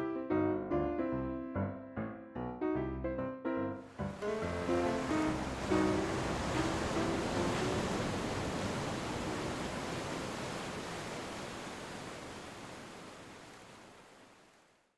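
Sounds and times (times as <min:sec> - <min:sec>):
small waves breaking on sand: 0:04.0 - 0:14.9.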